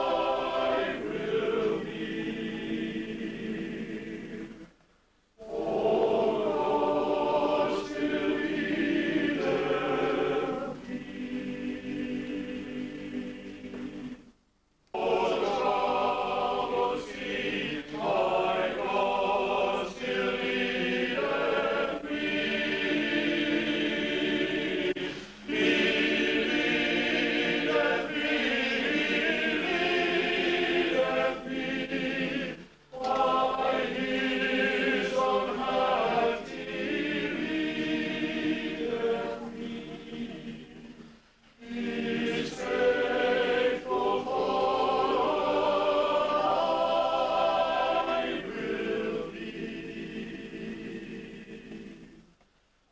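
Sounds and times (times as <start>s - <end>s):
choir singing in parts: 0.0s - 4.8s, 5.4s - 52.9s.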